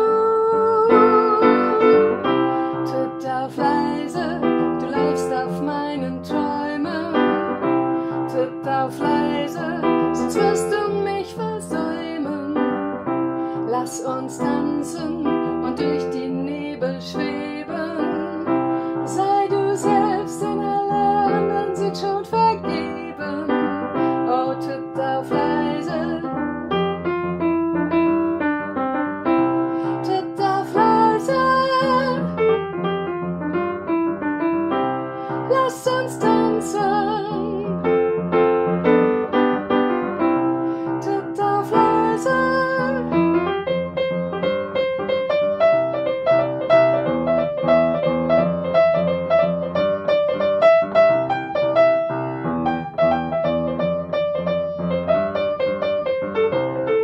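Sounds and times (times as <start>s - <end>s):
woman singing: 0.0s - 26.6s, 29.8s - 32.6s, 35.3s - 38.3s, 40.9s - 45.2s
upright piano playing chords: 0.0s - 57.0s.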